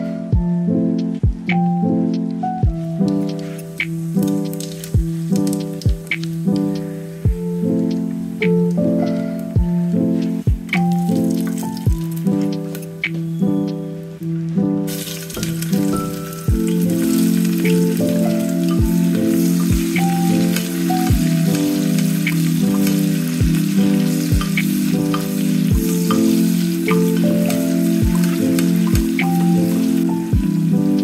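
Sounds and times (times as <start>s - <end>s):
background music: 0.0s - 31.0s
onions sizzling in hot oil: 14.9s - 31.0s.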